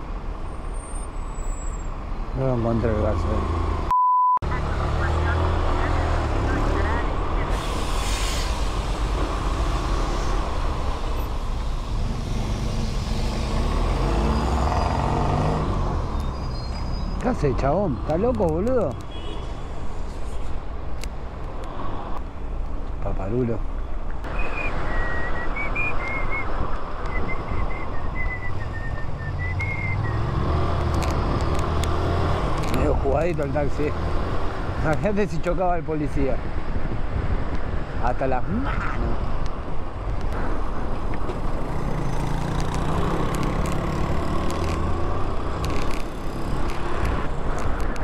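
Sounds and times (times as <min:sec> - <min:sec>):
surrounding traffic rumble: 0:00.0 - 0:48.0
person whistling a tune: 0:24.5 - 0:26.5.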